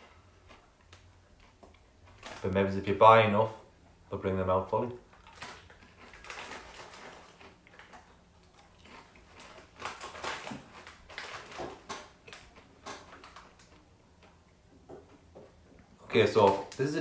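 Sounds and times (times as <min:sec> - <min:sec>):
chewing potato crisp crunches: 0:05.0 - 0:14.4.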